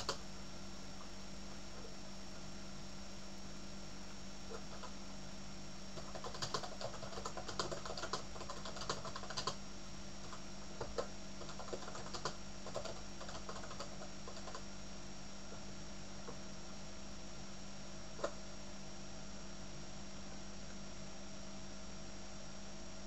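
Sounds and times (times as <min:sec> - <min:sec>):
faint steady hum: 0:00.0 - 0:23.0
keyboard keys clicking: 0:06.0 - 0:09.6, 0:10.3 - 0:14.6.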